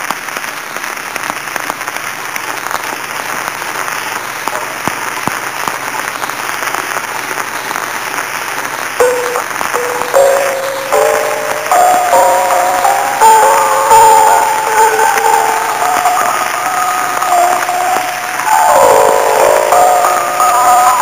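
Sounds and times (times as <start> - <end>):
record surface crackle and hiss: 0.0 - 21.0
traditional music: 9.0 - 21.0.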